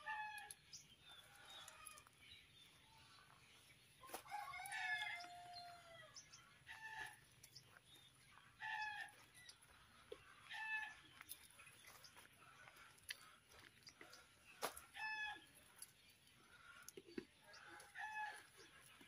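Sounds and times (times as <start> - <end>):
rooster crowing: 4.1 - 6.2
chicken clucking: 8.3 - 15.4.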